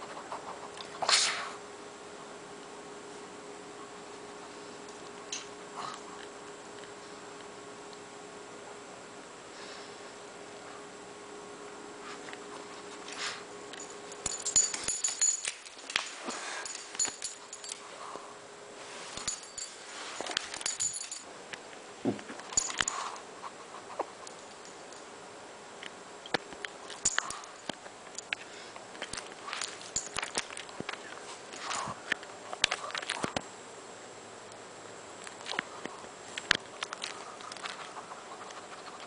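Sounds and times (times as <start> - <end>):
clicks and rustles: 12.2 - 17.9, 19.0 - 23.2, 25.8 - 33.5, 35.2 - 39.0
light jingling: 13.1 - 17.9, 19.1 - 21.3, 22.4 - 23.2, 24.2 - 25.1, 26.9 - 28.3, 29.1 - 30.7.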